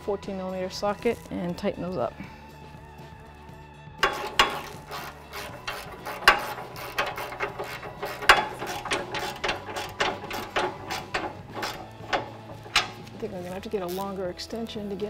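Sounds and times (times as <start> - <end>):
hand ratchet clicking: 4.0 - 14.2.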